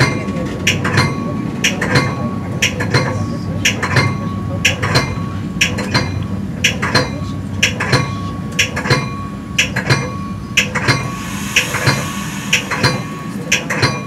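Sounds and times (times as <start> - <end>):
train rumble: 0.0 - 14.0
train wheels clicking over rail joints: 0.0 - 14.0.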